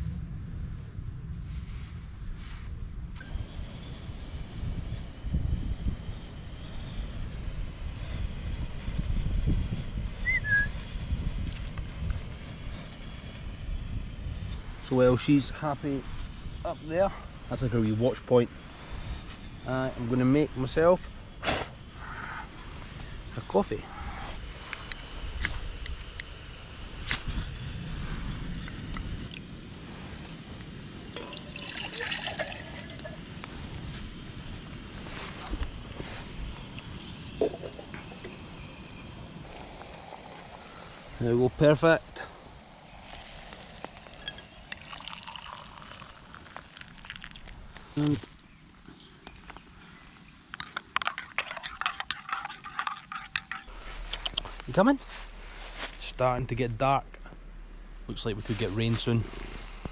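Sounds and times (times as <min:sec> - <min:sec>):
wind buffeting microphone: 0:00.0 - 0:48.0
fire steel scraping: 0:01.5 - 0:59.9
water pouring into pot: 0:31.1 - 0:33.2, 0:39.5 - 0:41.1, 0:41.8 - 0:47.7.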